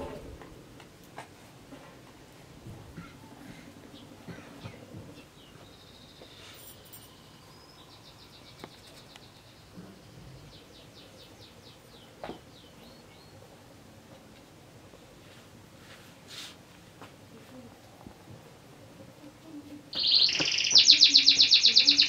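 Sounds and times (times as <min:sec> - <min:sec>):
faint bird chirps: 0:03.9 - 0:13.4, 0:19.9 - 0:22.0.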